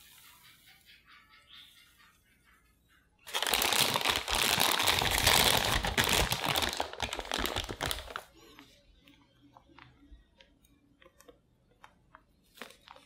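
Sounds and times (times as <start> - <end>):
plastic bag crinkling: 3.3 - 8.4.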